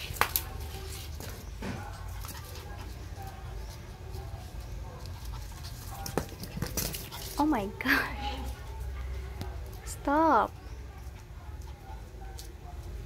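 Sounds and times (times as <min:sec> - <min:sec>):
flip-flop slapping concrete: 0:00.0 - 0:00.6.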